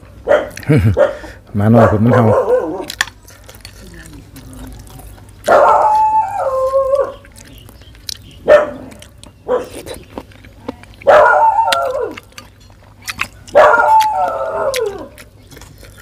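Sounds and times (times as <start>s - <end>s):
dog whining and howling: 1.8s - 3.0s, 5.5s - 7.4s, 11.1s - 12.3s, 13.5s - 15.3s.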